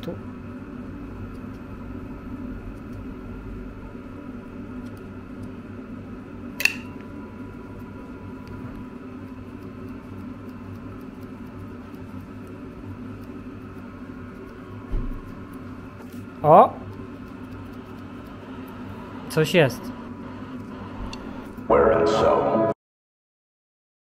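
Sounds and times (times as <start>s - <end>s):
steady low hum: 0.0s - 22.8s
sharp click: 6.6s - 6.9s
soft thump: 14.9s - 15.2s.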